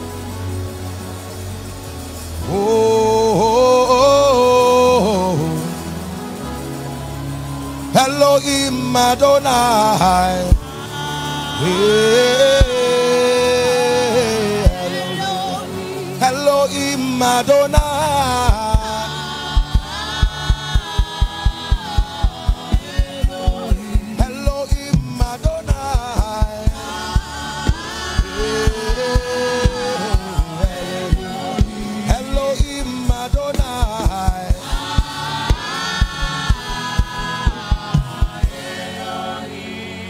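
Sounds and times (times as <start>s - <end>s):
choir singing gospel: 0.0s - 40.0s
fast steady beat: 10.5s - 10.7s, 17.7s - 38.8s.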